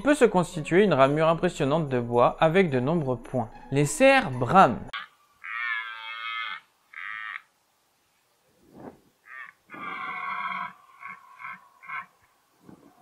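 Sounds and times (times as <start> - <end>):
deer stag roaring: 5.0 - 7.5, 9.2 - 13.0.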